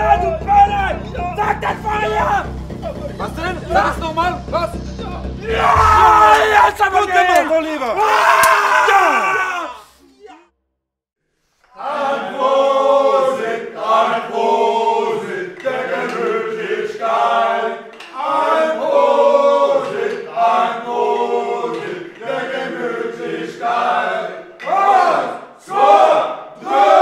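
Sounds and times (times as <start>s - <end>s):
men singing a cappella: 11.7s - 27.0s.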